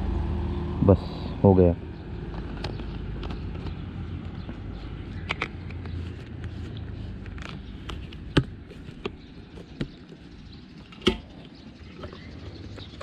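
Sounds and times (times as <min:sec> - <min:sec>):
fuel tank cap clicking: 0:05.1 - 0:06.5, 0:10.8 - 0:12.3.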